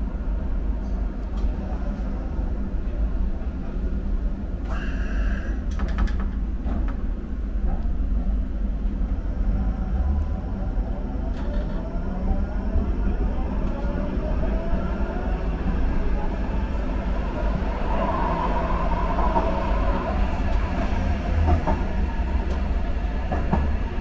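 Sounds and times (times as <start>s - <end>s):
train wheels rumbling on rails: 0.0s - 24.0s.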